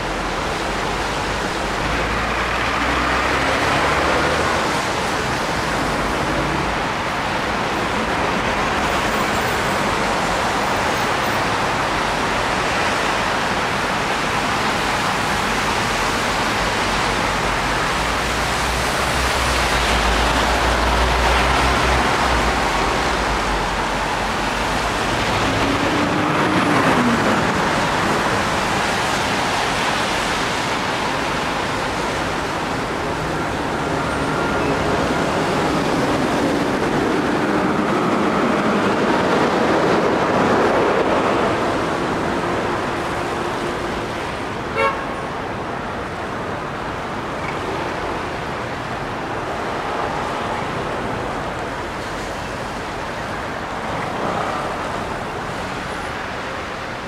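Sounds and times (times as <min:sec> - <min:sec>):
passing car engines: 0:00.0 - 0:57.0
tyres hissing on wet road: 0:00.0 - 0:57.0
short car horn beep: 0:44.8 - 0:45.0.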